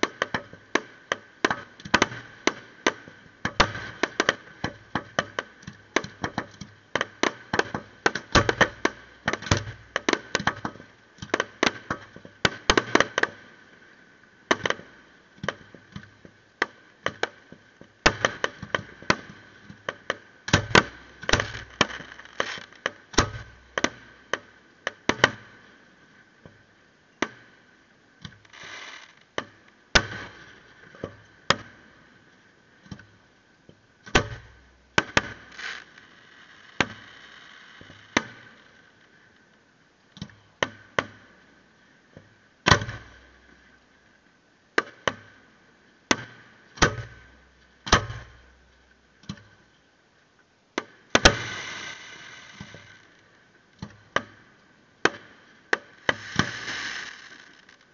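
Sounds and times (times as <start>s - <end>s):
fireworks bursting in bangs: 3.6s - 4.5s, 20.5s - 24.0s, 30.0s - 30.5s, 51.2s - 53.0s, 55.9s - 57.6s.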